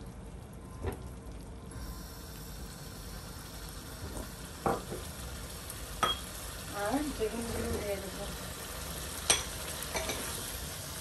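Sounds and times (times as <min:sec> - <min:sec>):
fish sizzling in spice paste: 0:01.7 - 0:11.0.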